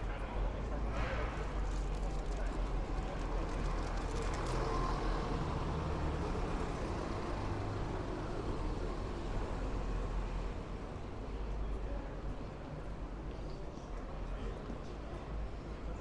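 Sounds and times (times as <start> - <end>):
road noise: 0.0 - 13.3.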